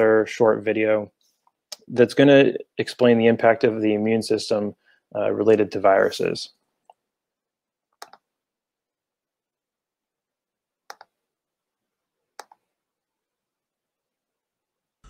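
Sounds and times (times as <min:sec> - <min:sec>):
computer mouse clicks: 0:08.0 - 0:08.3, 0:10.9 - 0:11.2, 0:12.4 - 0:12.6.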